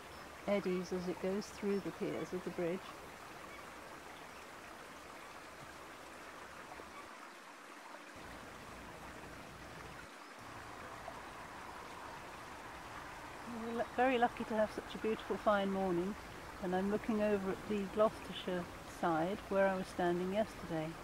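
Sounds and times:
fast-flowing river water: 0.0 - 21.0.

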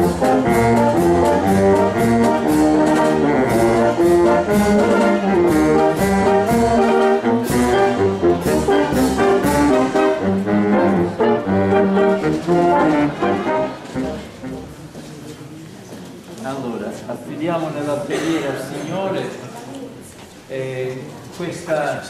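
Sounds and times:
percussion strikes: 0.0 - 14.8
wind band playing: 0.0 - 15.0.

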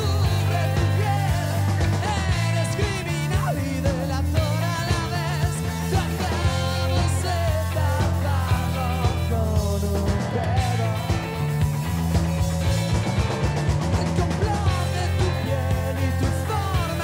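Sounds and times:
man singing: 0.0 - 11.7, 14.0 - 17.0
rock band playing: 0.0 - 17.0.

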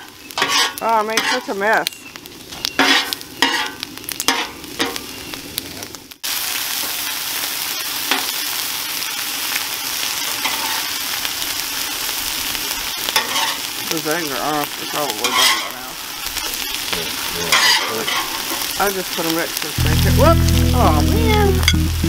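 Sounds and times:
bacon sizzling on griddle: 0.0 - 22.0
eggs frying sizzle: 0.0 - 22.0
metal spatula scraping griddle: 0.3 - 1.5, 2.8 - 4.5, 13.2 - 13.6, 15.2 - 15.8, 17.5 - 18.4.

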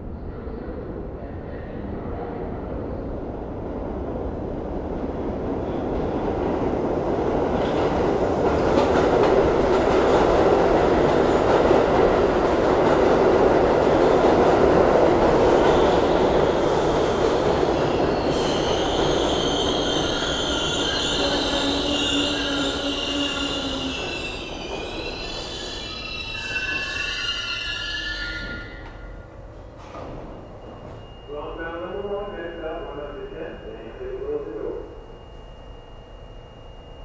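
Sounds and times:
train wheels rumbling on rails: 3.3 - 27.7
wheel and brake squeals: 17.7 - 29.3.

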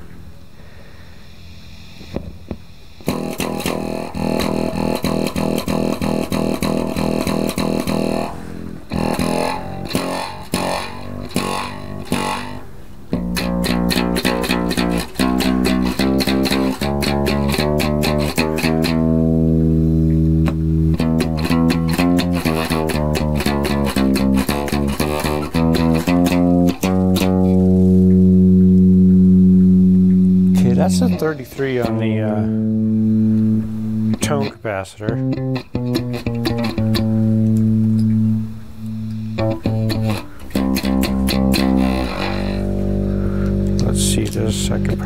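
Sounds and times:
amplified nylon guitar plucked: 3.0 - 45.0.

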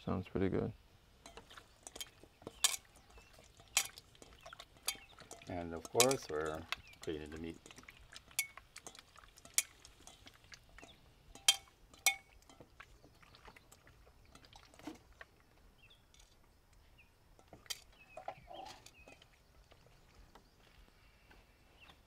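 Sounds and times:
metallic clinks against bowl: 1.2 - 10.2, 10.8 - 12.7
hands mixing raw meat: 1.2 - 15.8.

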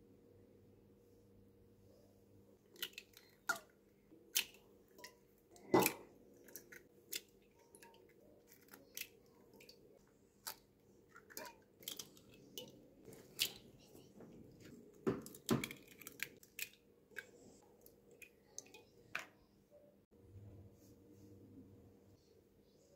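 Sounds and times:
eggshells cracking: 15.2 - 17.3.

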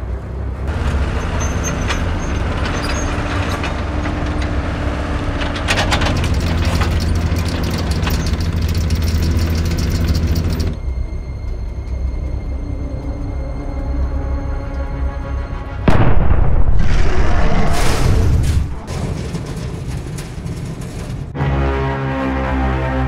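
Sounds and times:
tank engine drone: 0.0 - 23.0
tank tracks clanking: 0.7 - 10.9, 17.9 - 21.4.

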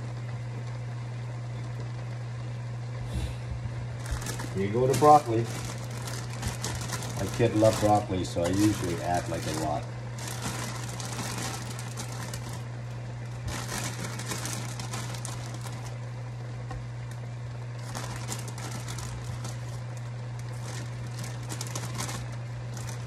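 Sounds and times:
steady low hum: 0.0 - 23.0
plastic bag crinkling: 4.0 - 16.1, 17.7 - 23.0.

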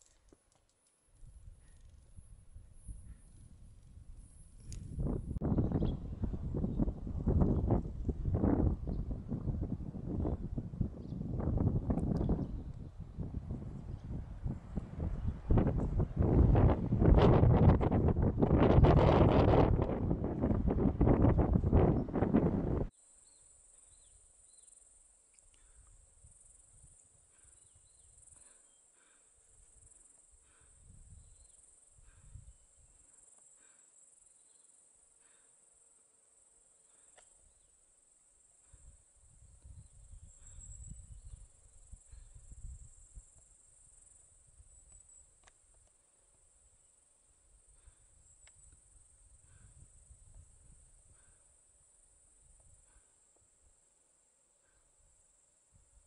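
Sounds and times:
wind gusts on microphone: 1.2 - 22.9, 38.8 - 43.2.

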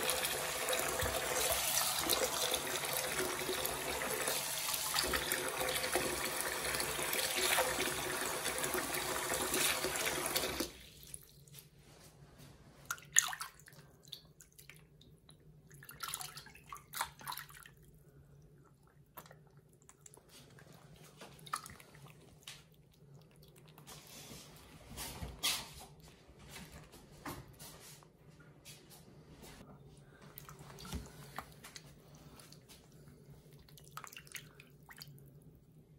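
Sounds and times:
tap water pouring into basin: 0.0 - 11.2
water splashing and sloshing: 9.3 - 28.0, 29.5 - 35.6.

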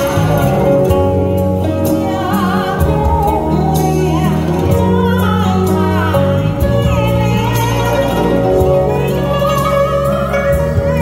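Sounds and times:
instrumental accompaniment: 0.0 - 11.0
woman singing with vibrato: 0.0 - 11.0.

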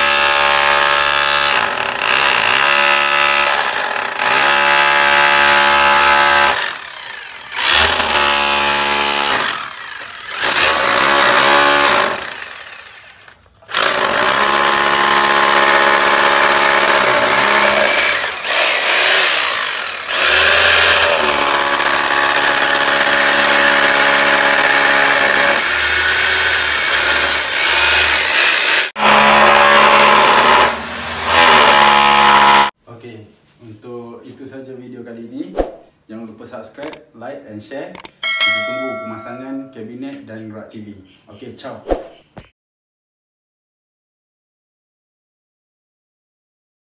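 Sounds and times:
power drill boring into brick: 0.0 - 32.8.

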